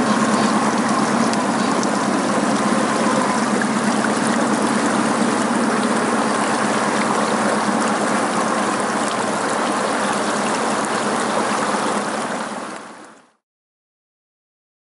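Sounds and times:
stream rushing over rock: 0:00.0 - 0:13.4.

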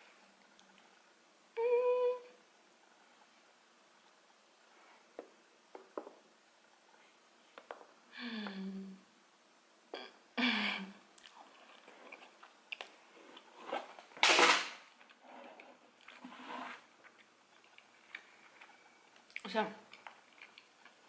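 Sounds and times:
person humming mm: 0:08.1 - 0:09.1
chewing clicks: 0:17.0 - 0:21.0.

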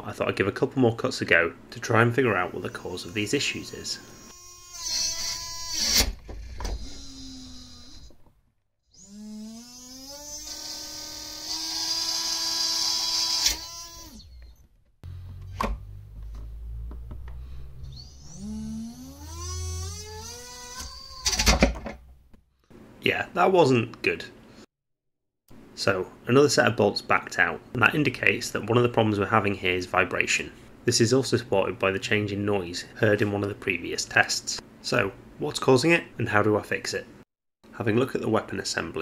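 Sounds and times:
circular saw whine: 0:08.9 - 0:15.3, 0:17.4 - 0:21.3.

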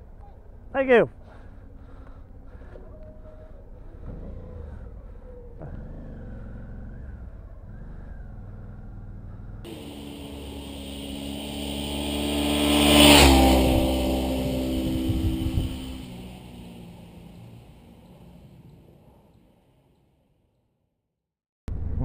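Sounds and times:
street traffic: 0:00.0 - 0:20.3
muffled motorcycle idle: 0:01.2 - 0:12.1
motorcycle engine passing by: 0:03.2 - 0:19.7.

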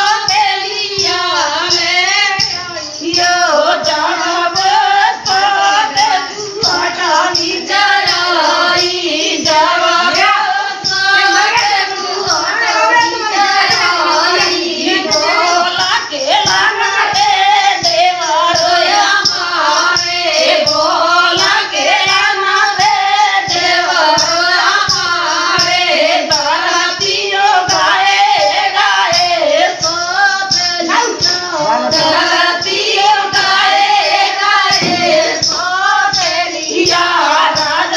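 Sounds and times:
rhythmic percussion beat: 0:00.0 - 0:37.9
women singing folk song: 0:00.0 - 0:37.9.

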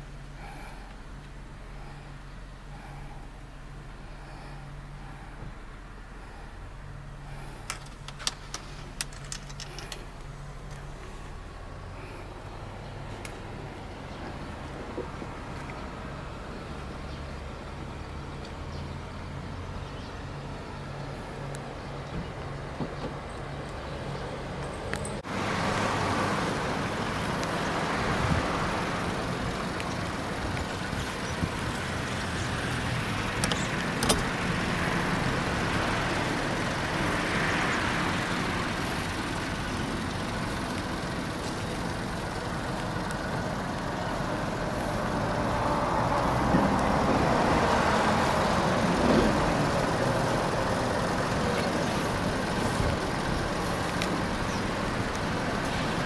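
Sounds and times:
tyre noise on pavement: 0:21.9 - 0:56.0.

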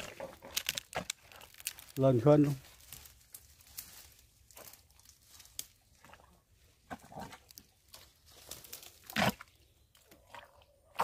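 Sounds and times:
leaves rustling: 0:00.0 - 0:06.0, 0:07.8 - 0:09.1
mud squelches: 0:00.0 - 0:11.0.

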